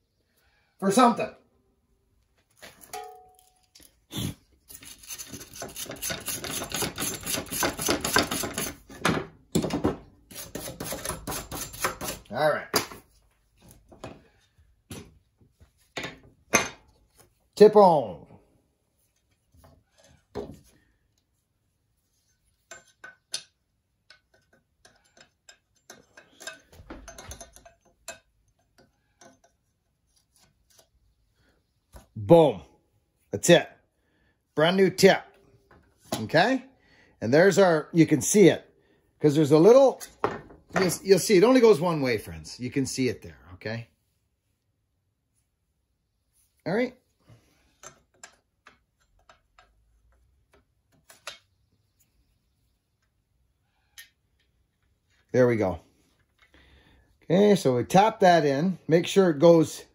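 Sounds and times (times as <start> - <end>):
short metallic ring: 2.9 - 3.7
small metal scrapes: 4.6 - 8.9.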